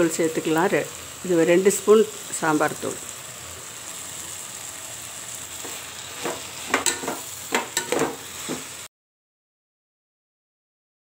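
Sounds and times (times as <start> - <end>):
vegetables sizzling in oil: 0.0 - 8.9
metal spoon scraping a pot: 5.6 - 8.6.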